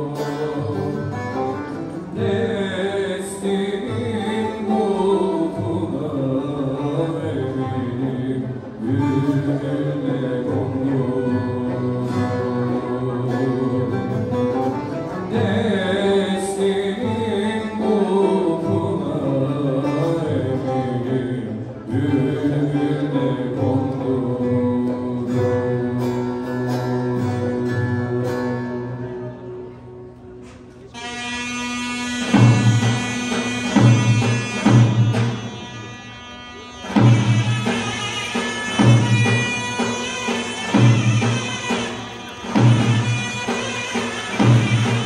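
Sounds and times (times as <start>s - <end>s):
person singing: 0.0s - 29.8s
plucked string instruments: 0.0s - 45.0s.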